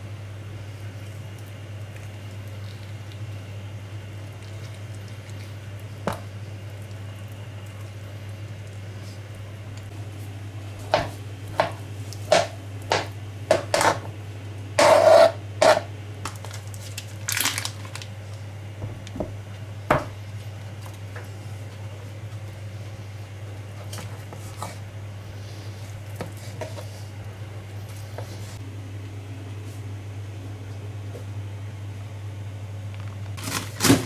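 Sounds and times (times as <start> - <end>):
knife scraping board: 13.7 - 14.0, 14.8 - 15.9.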